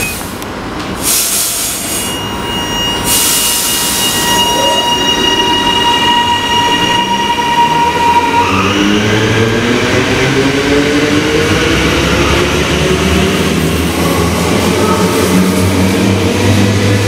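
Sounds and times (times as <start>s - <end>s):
electric train whine: 0.1s - 17.0s
train hiss: 1.0s - 2.2s.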